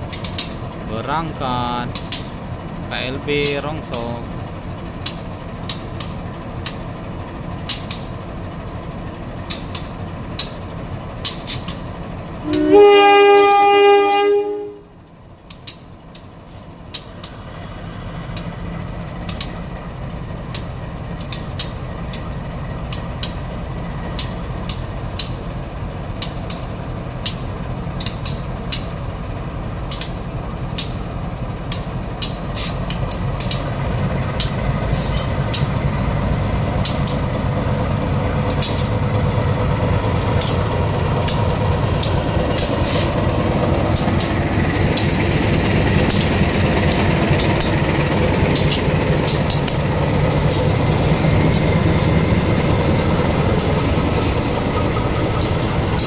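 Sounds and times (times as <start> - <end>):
train rumbling past: 0.0 - 56.0
wheel clicks over rail joints: 0.1 - 0.8, 1.8 - 2.5, 5.0 - 7.0, 7.6 - 8.3, 9.4 - 12.7, 15.4 - 17.4, 19.2 - 19.7, 20.4 - 29.2, 29.8 - 56.0
two-tone train horn: 12.4 - 15.0.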